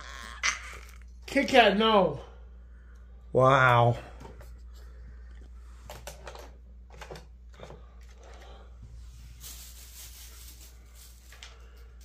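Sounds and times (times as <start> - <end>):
low steady hum: 0.0 - 12.0
soft rustling hiss: 8.2 - 12.0.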